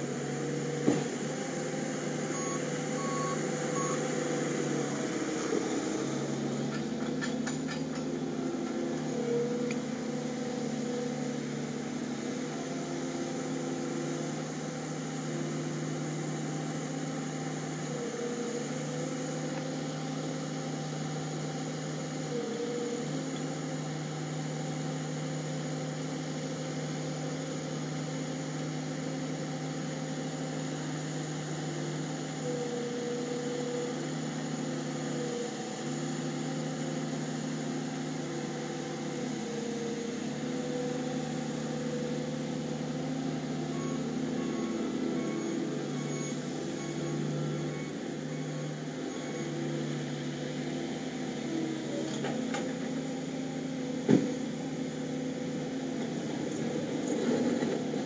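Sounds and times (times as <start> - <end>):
diesel engine running under load: 0.0 - 58.0.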